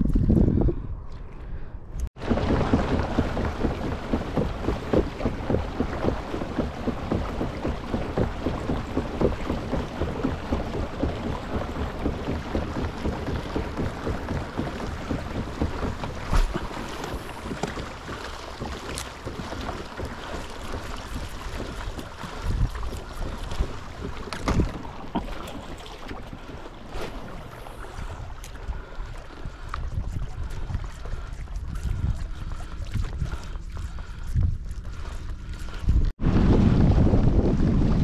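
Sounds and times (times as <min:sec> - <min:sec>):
wind buffeting microphone: 0:00.0 - 0:38.0
water slapping against kayak hull: 0:02.1 - 0:38.0.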